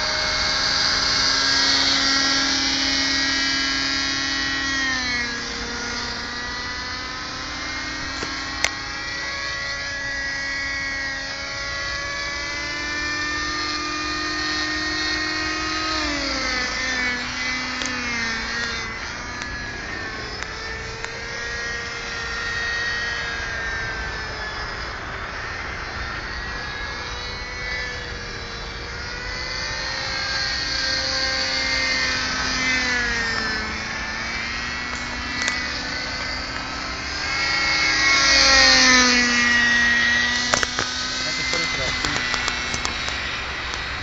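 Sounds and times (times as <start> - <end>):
model helicopter engine whining: 0.0 - 44.0.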